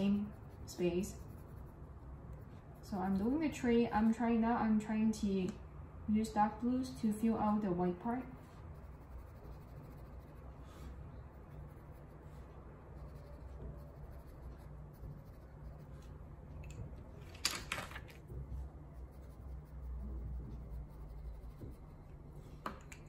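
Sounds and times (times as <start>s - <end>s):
pencil scratching on paper: 0.0s - 3.4s, 8.2s - 16.2s, 18.5s - 22.6s
steady low hum: 0.0s - 23.0s
pencils clattering: 17.2s - 18.2s.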